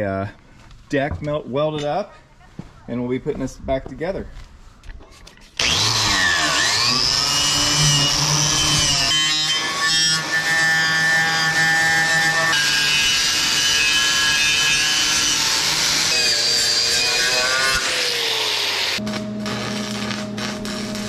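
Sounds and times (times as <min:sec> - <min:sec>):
angle grinder grinding metal: 0:05.6 - 0:21.0.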